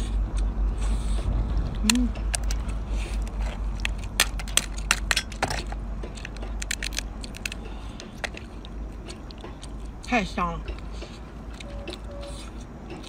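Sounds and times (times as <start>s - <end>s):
low rumble: 0.0s - 12.8s
crab shell cracking: 2.2s - 10.0s.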